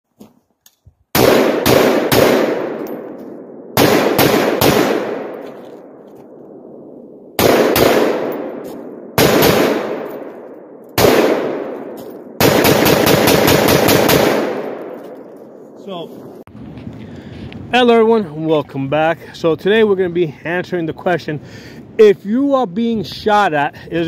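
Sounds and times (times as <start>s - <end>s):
rifle shots echoing: 1.1s - 15.8s.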